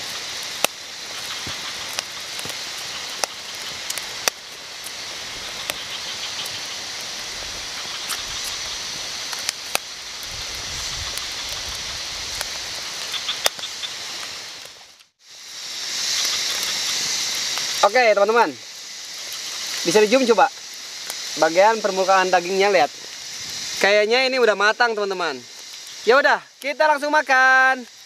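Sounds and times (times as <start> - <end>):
campfire crackling and popping: 0.0 - 28.0
rain hissing: 0.0 - 28.0.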